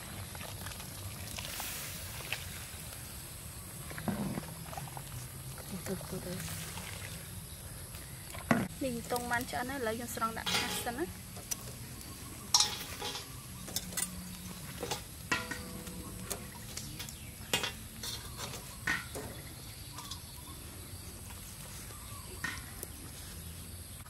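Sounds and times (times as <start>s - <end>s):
metal tongs clinking on grill rack: 10.4s - 11.1s, 12.5s - 14.2s, 14.8s - 19.3s.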